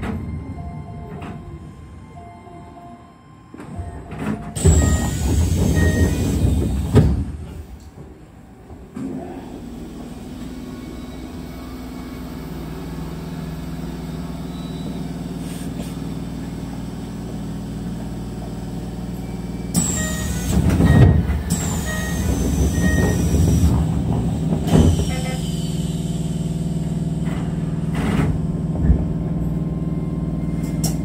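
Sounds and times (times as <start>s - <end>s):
train equipment humming: 0.0s - 31.0s
short beeps: 0.2s - 5.2s.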